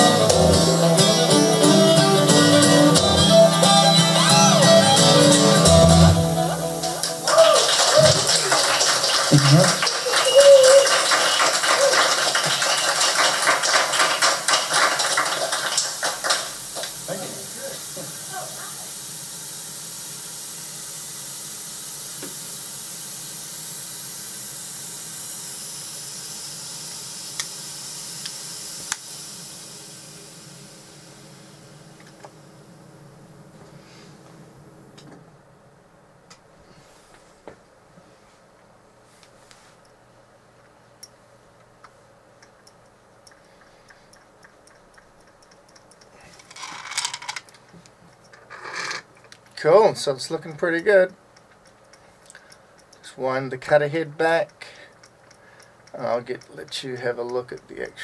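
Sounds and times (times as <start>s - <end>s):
vacuum hissing: 0.0s - 35.2s.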